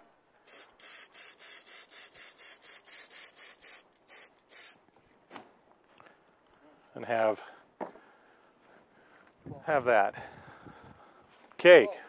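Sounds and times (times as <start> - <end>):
spray can hissing bursts: 0.4 - 4.8.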